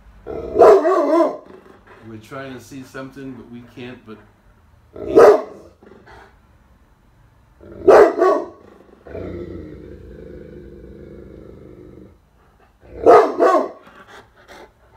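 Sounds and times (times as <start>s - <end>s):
dog barking deeply: 0.2s - 2.1s, 4.9s - 6.0s, 7.6s - 9.5s, 12.8s - 13.8s
dog growling: 1.3s - 2.2s, 4.9s - 6.4s, 7.6s - 13.2s.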